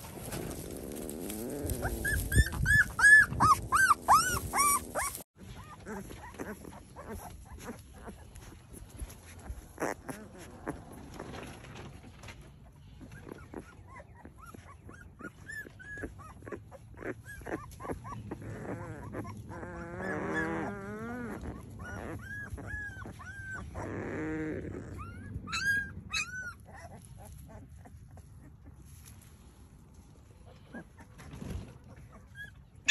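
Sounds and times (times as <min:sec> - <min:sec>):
puppies squeaking and whimpering: 0:00.2 - 0:11.9, 0:12.5 - 0:29.0, 0:30.2 - 0:32.9
puppy wavering cry: 0:01.3 - 0:08.4, 0:13.2 - 0:27.4, 0:31.9 - 0:32.9.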